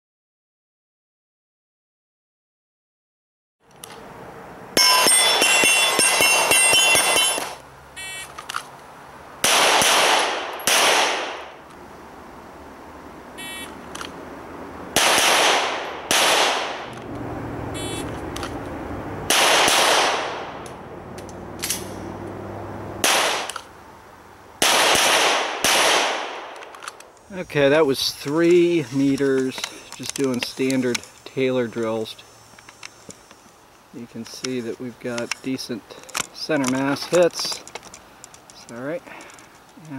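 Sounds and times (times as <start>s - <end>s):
pistol gunshots with echo: 9.4s - 11.6s, 14.9s - 16.9s, 19.3s - 20.6s, 23.0s - 23.5s, 24.6s - 26.6s.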